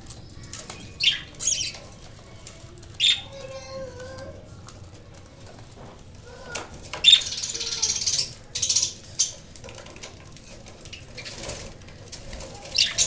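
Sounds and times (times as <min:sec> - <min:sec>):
budgerigars chattering: 0:07.0 - 0:09.4.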